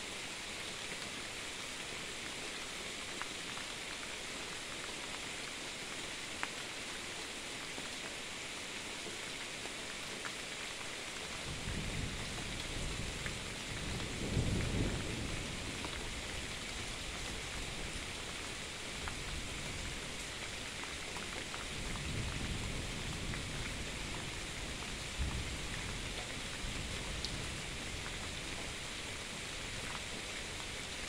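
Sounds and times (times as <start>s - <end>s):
steady rain: 0.0s - 31.0s
thunder rumbling: 11.5s - 18.2s.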